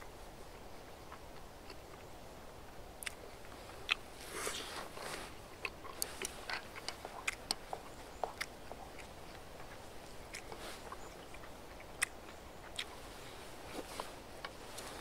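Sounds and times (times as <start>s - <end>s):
person chewing food: 1.1s - 15.0s
mouth clicks and smacks: 5.6s - 13.0s.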